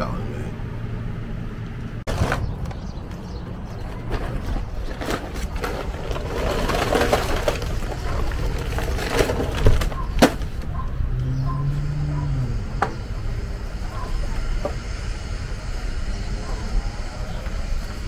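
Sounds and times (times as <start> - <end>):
low outdoor rumble: 0.0 - 18.0
plastic bags rustling: 4.1 - 10.7.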